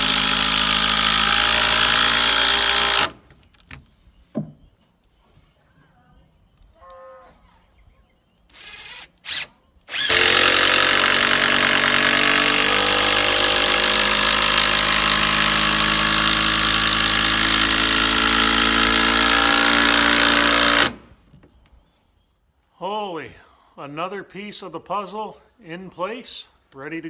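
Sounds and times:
cordless drill whining: 0.0 - 3.2, 8.5 - 21.0.

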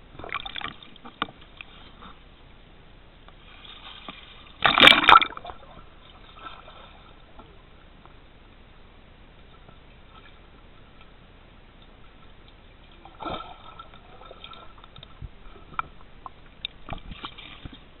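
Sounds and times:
underwater splash and bubbling: 0.0 - 2.2, 3.4 - 7.7, 11.8 - 18.0.

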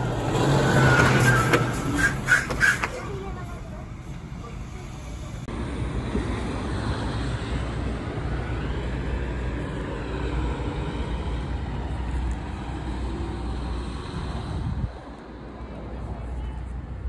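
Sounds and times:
vehicle passing by: 0.0 - 3.0, 5.4 - 16.2
traffic rumble: 0.0 - 17.0.

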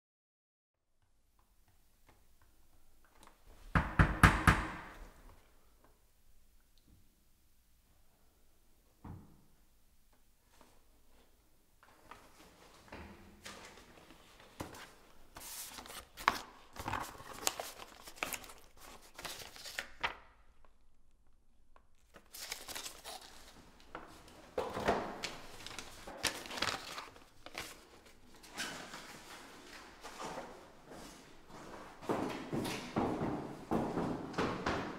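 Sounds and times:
paper and banknotes rustling: 13.5 - 20.2, 22.0 - 24.3, 25.2 - 30.4
envelope tearing: 15.4 - 20.2, 22.0 - 23.6, 25.2 - 28.2.

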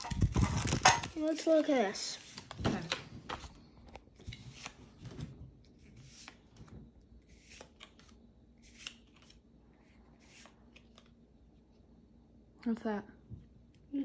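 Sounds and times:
trading cards flicking and sliding: 4.2 - 4.9, 7.3 - 9.4, 10.2 - 11.2.

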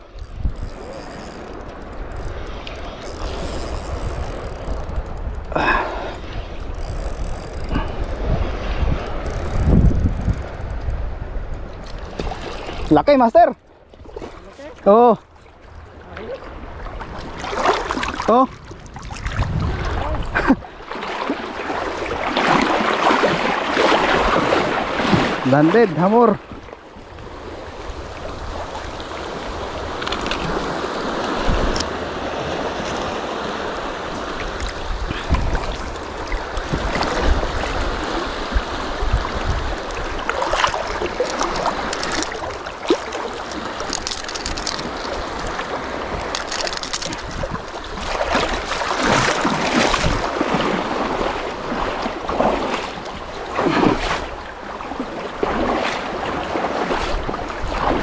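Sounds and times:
shallow seawater washing: 0.0 - 10.2, 10.8 - 58.0
wind buffeting microphone: 0.0 - 13.1, 15.6 - 58.0
splashes of person wading: 16.4 - 25.6, 39.3 - 58.0.

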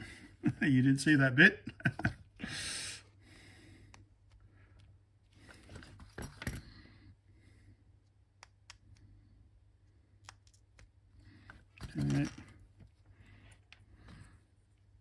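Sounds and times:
low steady hum: 0.0 - 15.0
small tools clicking and clinking: 11.8 - 12.9.

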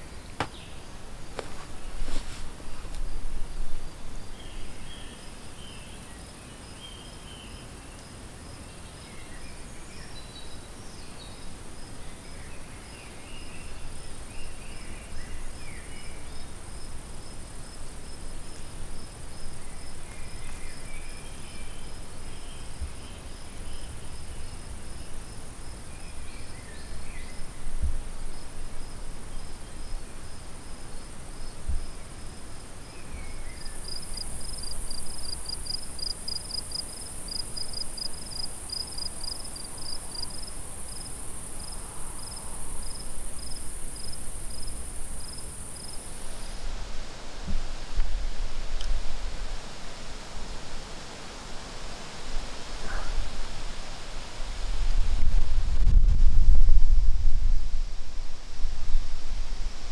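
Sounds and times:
crickets chirping: 0.0 - 55.1
soft thumps: 0.4 - 0.6.

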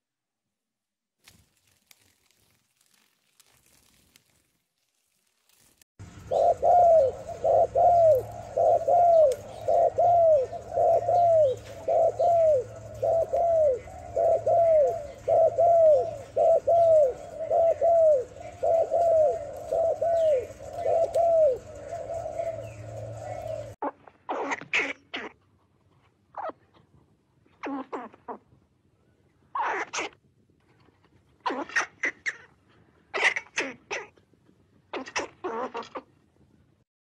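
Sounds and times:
pigeons cooing: 6.0 - 23.8.

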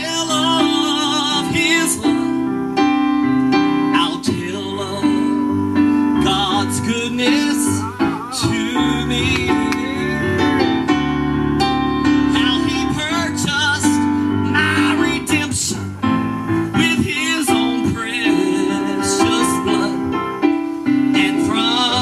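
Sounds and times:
person singing with vibrato: 0.0 - 2.7, 3.8 - 22.0
electric keyboard chords: 0.0 - 22.0.

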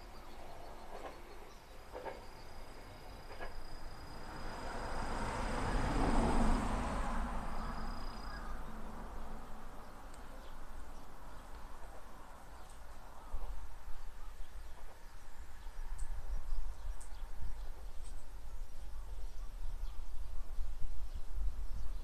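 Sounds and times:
high insect tone: 1.7 - 6.7, 7.4 - 8.5
vehicle passing by: 4.1 - 9.9.

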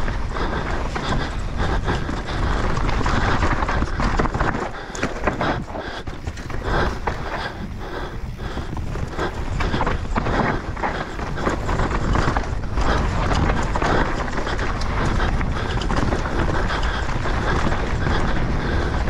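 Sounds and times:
bike rattling over rocks: 0.0 - 19.0
wind rush on microphone: 0.0 - 19.0.

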